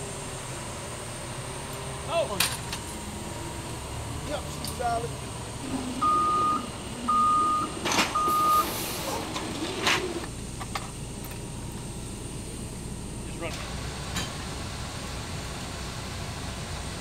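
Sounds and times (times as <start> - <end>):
low engine rumble: 0.0 - 17.0
reversing alarm beeping: 5.6 - 8.8.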